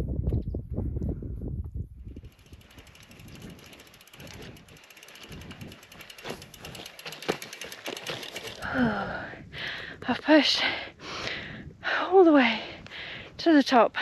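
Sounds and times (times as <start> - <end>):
bicycle freehub ticking: 2.0 - 10.0
person breathing: 8.4 - 10.0, 10.6 - 13.4.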